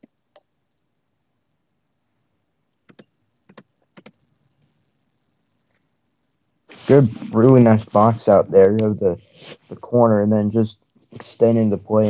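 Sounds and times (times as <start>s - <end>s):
computer mouse clicks: 2.8s - 4.2s.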